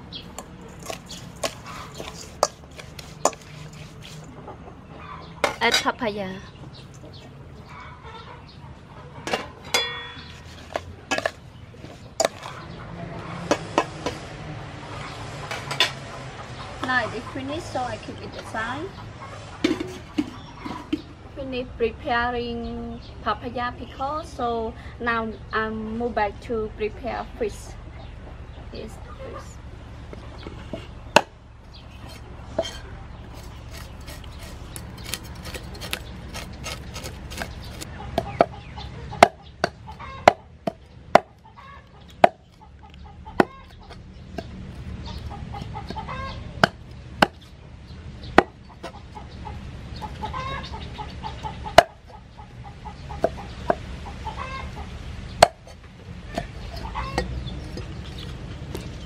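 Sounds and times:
cleaver scraping fish scales: 0:00.6 - 0:04.4, 0:10.2 - 0:12.7, 0:31.9 - 0:37.9.

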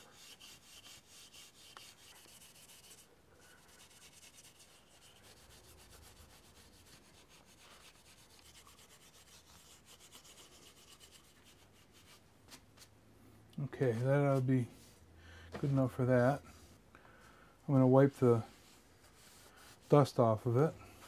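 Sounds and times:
steel wool rubbing wood: 0:00.0 - 0:12.2, 0:17.7 - 0:20.2.

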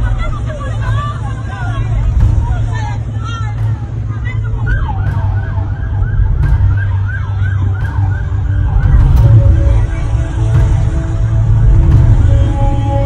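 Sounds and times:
low rumble: 0:00.0 - 0:13.0
police siren yelping: 0:04.6 - 0:10.8.

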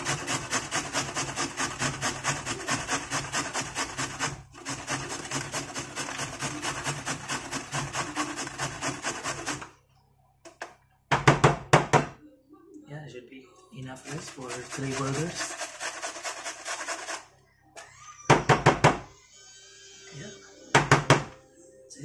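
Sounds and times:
carrot grating on a metal grater: 0:00.0 - 0:09.7, 0:14.0 - 0:17.3.

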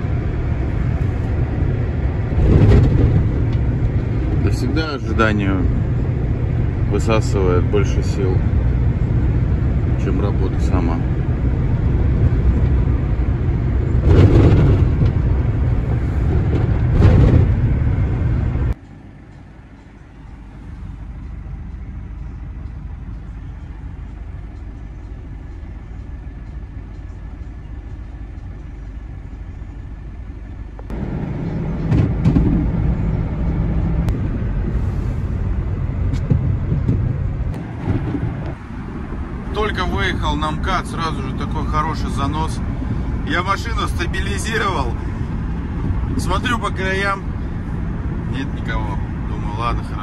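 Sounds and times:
engine and tyre rumble: 0:00.0 - 0:50.0
heavy thumps: 0:31.8 - 0:33.0, 0:36.1 - 0:38.6.

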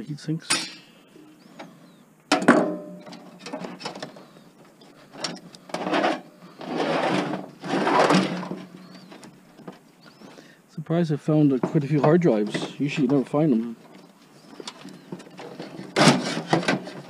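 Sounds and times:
metal clank ringing: 0:00.5 - 0:01.3, 0:02.3 - 0:03.6.

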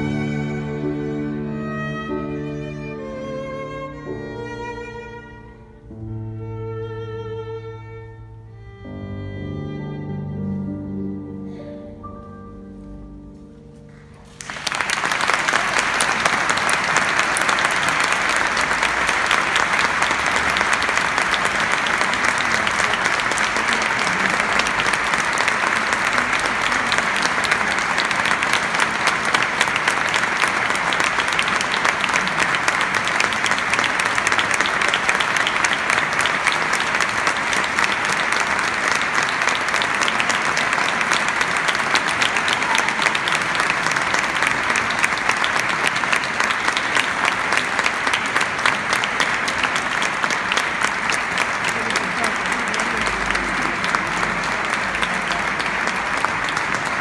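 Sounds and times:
audience applause: 0:00.0 - 0:04.6, 0:13.9 - 0:57.0.

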